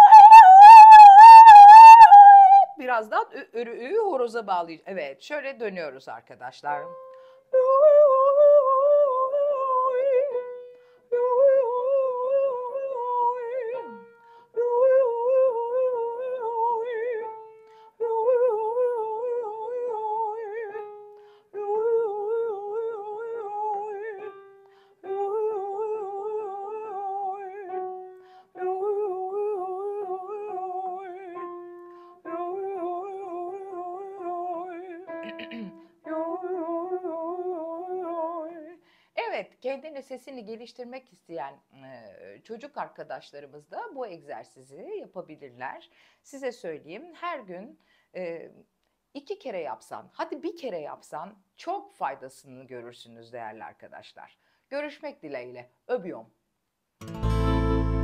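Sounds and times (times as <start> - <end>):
woman singing vocal exercise: 0.0 - 2.9, 7.5 - 10.5, 11.1 - 20.9, 21.5 - 24.4, 25.0 - 27.8, 28.5 - 31.5, 32.2 - 39.4
piano accompaniment: 6.7 - 7.3, 10.0 - 10.8, 27.2 - 29.3, 30.5 - 33.6, 34.2 - 37.2, 57.0 - 58.0.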